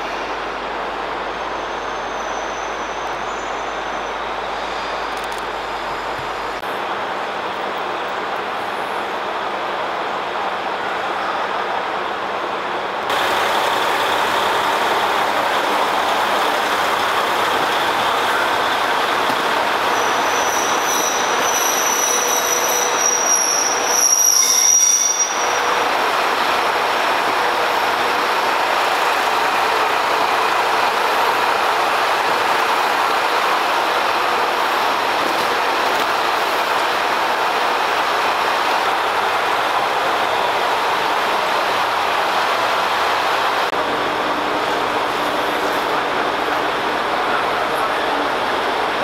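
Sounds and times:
train rolling on rails: 0.0 - 49.0
high-pitched wheel squeal: 19.9 - 25.7.

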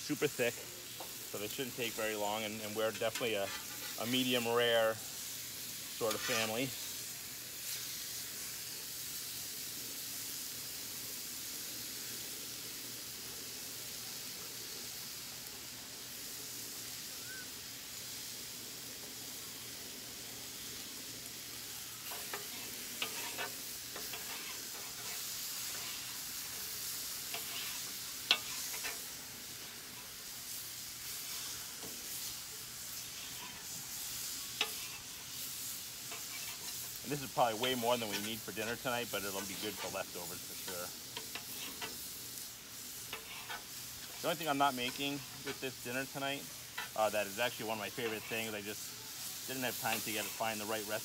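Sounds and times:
food sizzling on griddle: 0.0 - 51.0
metal utensils scraping griddle: 0.3 - 5.0, 5.9 - 7.0, 21.5 - 51.0.

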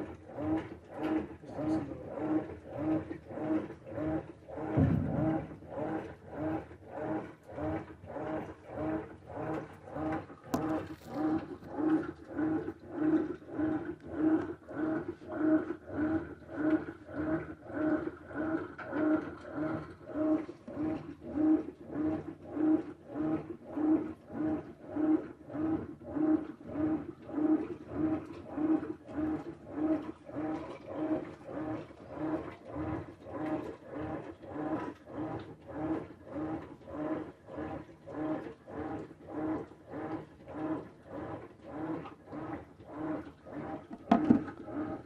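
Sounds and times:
washing machine motor humming: 0.0 - 45.0
water sloshing: 9.8 - 14.0, 43.6 - 45.0.

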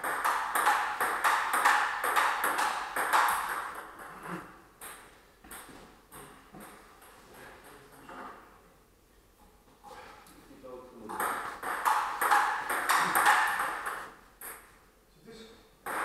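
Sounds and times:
table tennis ball hits: 0.0 - 6.9, 11.1 - 14.7.

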